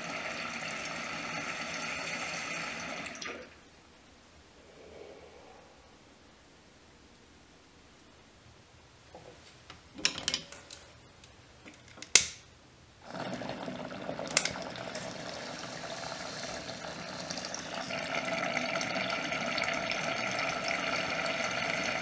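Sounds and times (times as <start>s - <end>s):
water bubbling in a bong: 13.0s - 22.0s.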